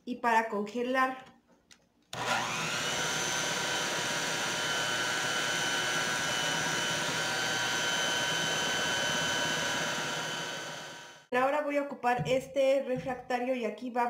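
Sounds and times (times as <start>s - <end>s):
electric hand mixer whining: 2.2s - 11.3s.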